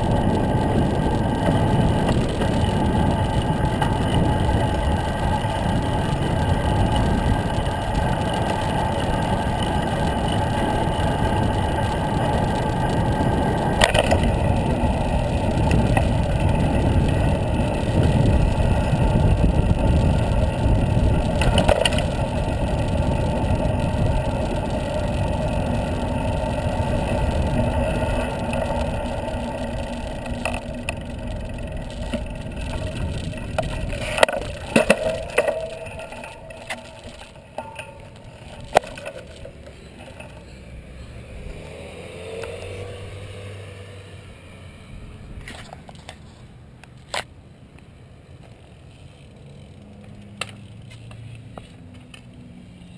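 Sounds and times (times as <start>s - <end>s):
wind on microphone: 0.0s - 39.7s
tyre and road rumble: 0.0s - 52.9s
sharp clicks or rattles: 0.1s - 40.6s.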